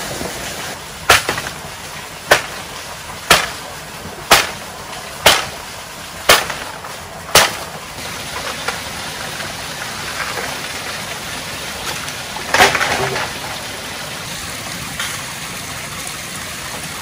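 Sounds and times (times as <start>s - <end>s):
wood being chopped: 1.1s - 1.6s, 2.3s - 2.7s, 3.3s - 3.7s, 4.3s - 5.6s, 6.3s - 7.8s, 12.5s - 13.3s.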